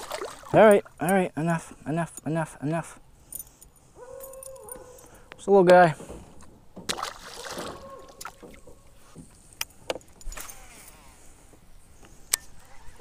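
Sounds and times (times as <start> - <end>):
soft water splashes: 0.0 - 1.0, 6.9 - 8.8.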